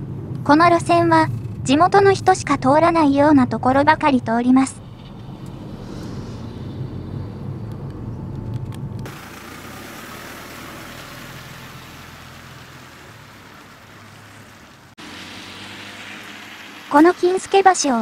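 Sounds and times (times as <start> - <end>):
bus engine and road rumble: 0.0 - 18.0
tyres hissing on wet road: 9.1 - 18.0.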